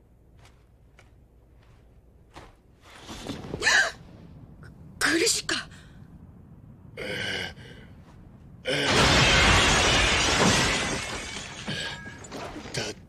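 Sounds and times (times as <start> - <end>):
glass shattering: 8.8 - 12.8.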